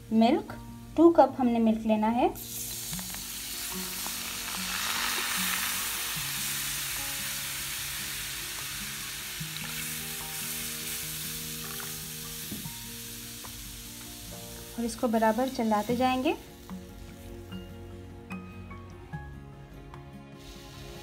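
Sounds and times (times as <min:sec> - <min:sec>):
soft background music: 0:00.0 - 0:21.0
milk sizzling in hot pan: 0:02.4 - 0:18.5, 0:20.3 - 0:21.0.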